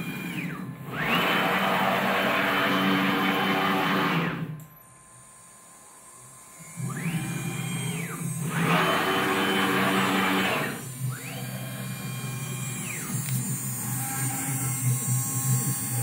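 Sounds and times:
cnc router stepper motor whine: 0.0 - 16.0.

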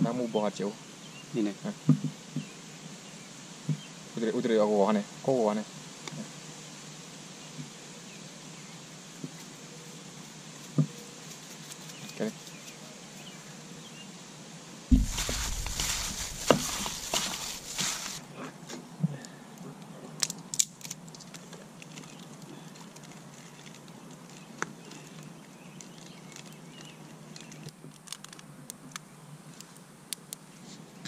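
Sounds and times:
oil pops and crackles: 20.2 - 30.4.

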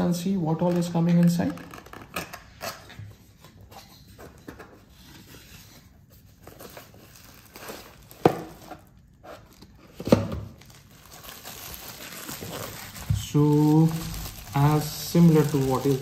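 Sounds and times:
bubble-wrapped item drawn out of box: 5.7 - 9.8, 10.6 - 16.0.

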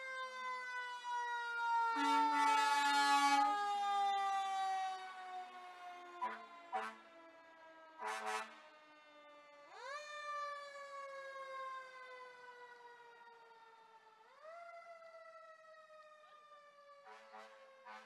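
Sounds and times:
fire truck siren wailing: 0.0 - 18.0
fire truck horn blast: 2.0 - 2.8, 6.2 - 7.2, 8.0 - 8.6, 17.0 - 18.0.

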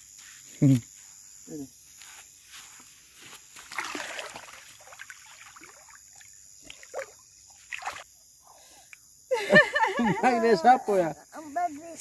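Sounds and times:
water splashing and sloshing: 3.4 - 8.2.

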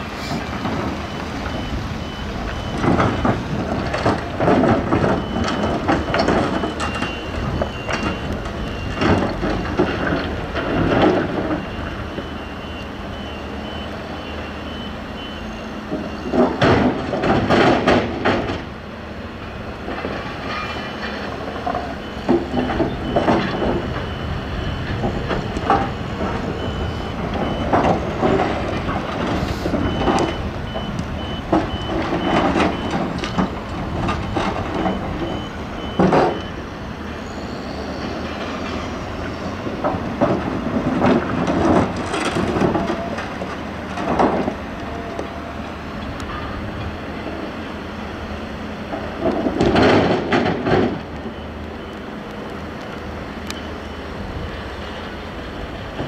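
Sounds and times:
reversing alarm beeping: 0.0 - 17.1, 19.4 - 40.0, 49.8 - 52.4, 53.4 - 55.0
excavator diesel engine under load: 0.0 - 56.0.

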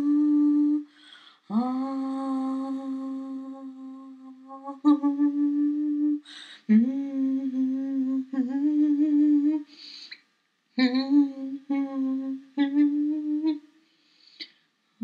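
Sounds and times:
person humming: 0.0 - 10.2, 10.8 - 13.6
breaths: 0.9 - 1.5, 6.2 - 6.7, 9.7 - 10.2, 13.8 - 14.7.

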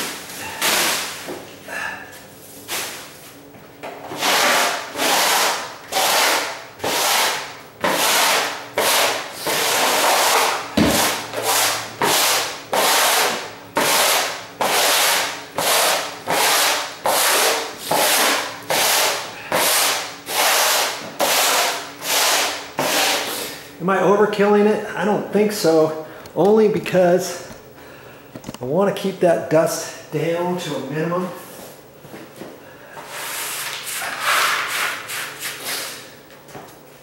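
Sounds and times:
broom sweeping a bare floor: 0.0 - 3.4, 4.1 - 23.6, 31.4 - 36.2.

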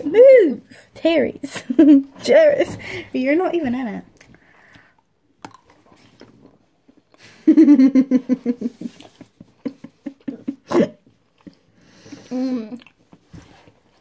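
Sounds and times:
mouth clicks while chewing: 4.2 - 6.4
girl giggling: 9.6 - 11.0.

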